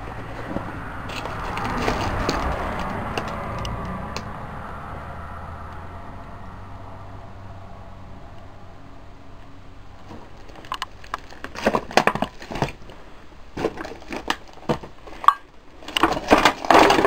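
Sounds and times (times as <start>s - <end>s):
footsteps crunching over debris: 0.0s - 3.9s, 10.0s - 17.0s.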